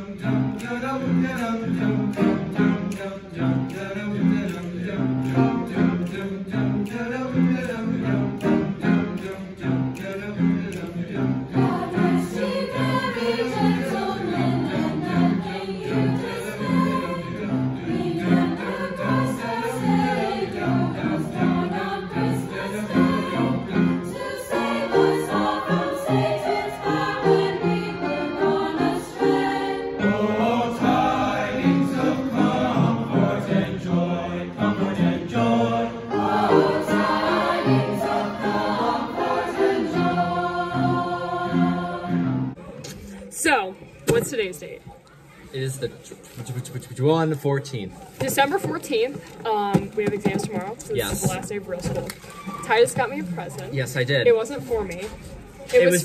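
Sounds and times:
choir singing in harmony: 0.0s - 42.6s
piano chords: 0.2s - 42.6s.

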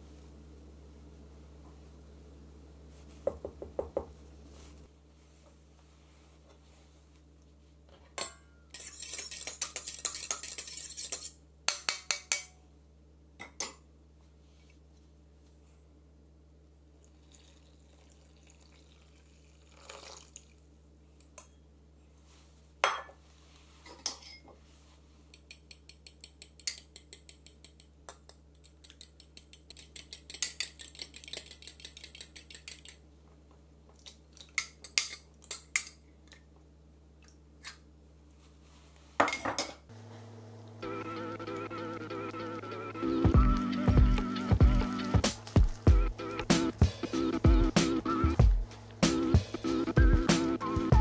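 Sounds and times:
faint steady hum: 0.0s - 51.0s
mixing bowls knocked and set down: 3.2s - 4.2s.

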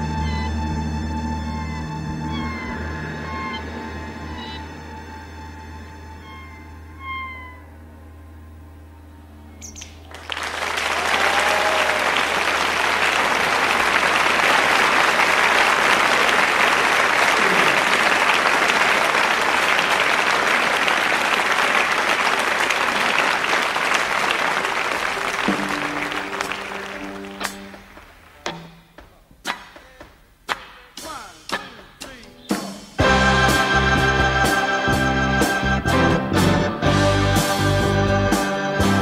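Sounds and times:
held musical notes: 0.0s - 10.4s, 23.4s - 30.0s, 30.7s - 39.0s
audience applauding: 10.0s - 28.6s.

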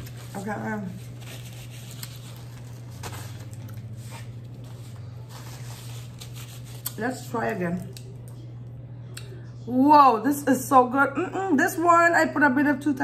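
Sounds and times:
paper napkin rustling: 0.0s - 7.6s
steady low hum: 0.0s - 13.0s.

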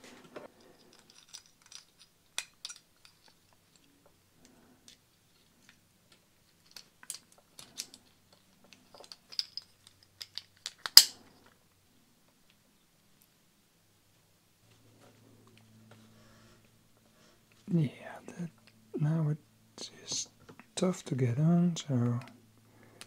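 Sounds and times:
small plastic and metal clicks: 6.7s - 11.1s.

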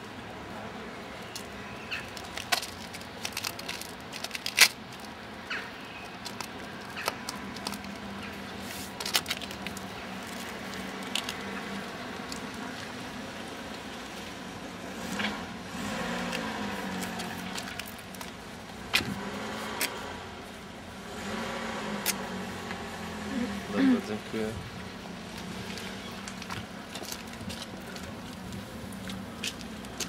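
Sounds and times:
crumpled material crinkling: 1.3s - 13.2s, 16.3s - 18.8s, 25.2s - 30.0s.

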